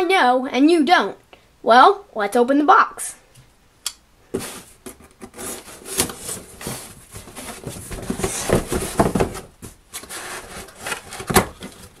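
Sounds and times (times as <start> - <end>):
cardboard rubbing: 4.3 - 12.0.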